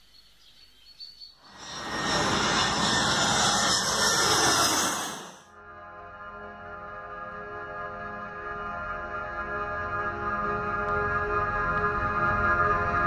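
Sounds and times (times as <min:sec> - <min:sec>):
jet airliner passing overhead: 0:01.5 - 0:05.5.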